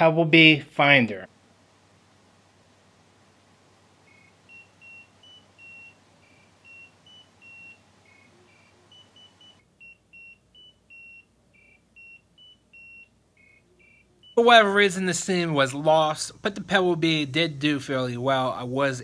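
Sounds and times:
tracker beeping tune: 4.5s - 14.6s.

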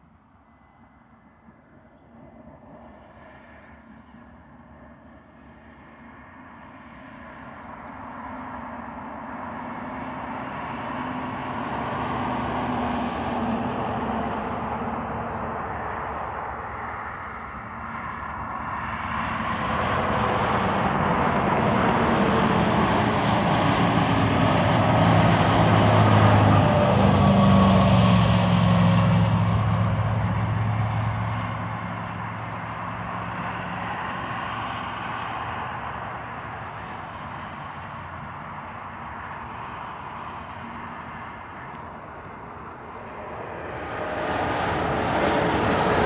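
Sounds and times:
low engine hum: 0.0s - 46.0s
vehicles passing on highway: 0.0s - 46.0s.

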